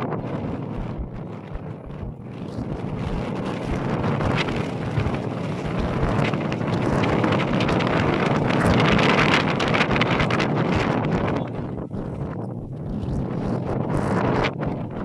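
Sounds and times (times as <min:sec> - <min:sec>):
wind blowing across microphone: 0:00.0 - 0:15.0.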